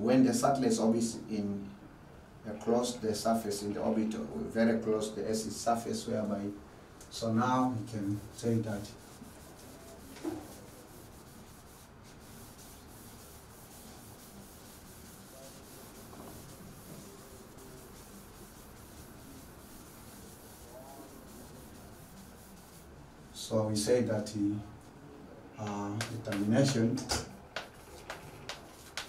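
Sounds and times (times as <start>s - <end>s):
duster wiping blackboard: 7.9s - 23.0s, 27.6s - 29.0s.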